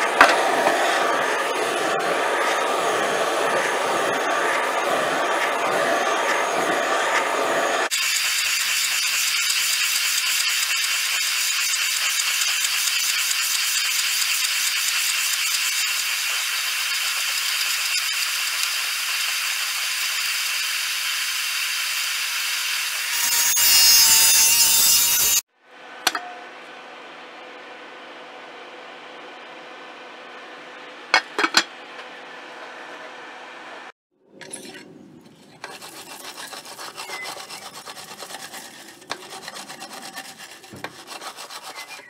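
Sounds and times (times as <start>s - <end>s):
soldering torch hissing: 0.0s - 24.6s.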